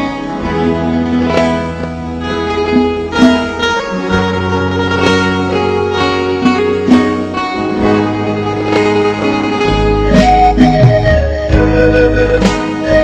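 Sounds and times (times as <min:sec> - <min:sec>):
instrumental pop music intro: 0:00.0 - 0:13.0.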